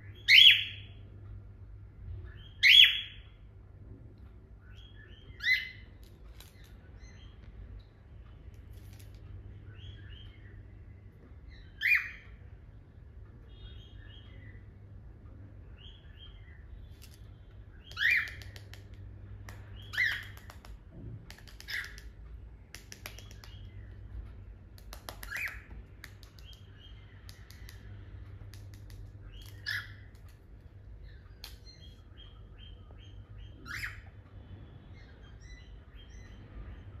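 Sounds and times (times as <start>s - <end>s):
cockatiel soft chirps: 17.8s - 18.9s, 19.5s - 22.1s, 24.8s - 30.4s, 31.0s - 34.2s
cockatiel sharp calls: 28.8s - 30.1s.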